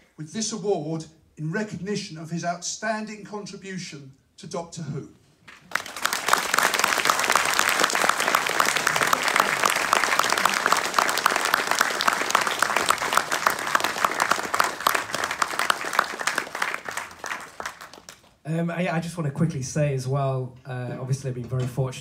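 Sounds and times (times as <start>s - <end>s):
audience applauding: 5.6s - 18.4s.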